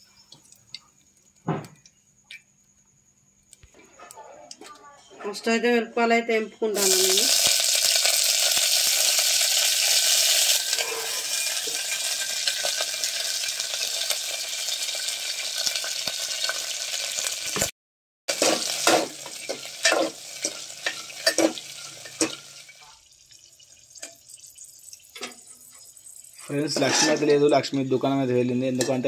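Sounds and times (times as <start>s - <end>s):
chillies sizzling in hot oil: 6.6s - 17.7s, 18.3s - 29.0s
ladle clinking and scraping pot: 10.6s - 12.0s, 18.3s - 22.5s, 25.1s - 27.6s, 28.7s - 29.0s.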